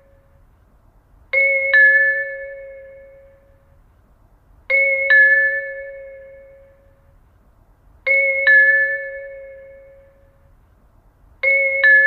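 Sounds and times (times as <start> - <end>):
two-tone train approach chime: 1.4 - 3.8, 4.7 - 7.2, 8.1 - 10.5, 11.4 - 12.0.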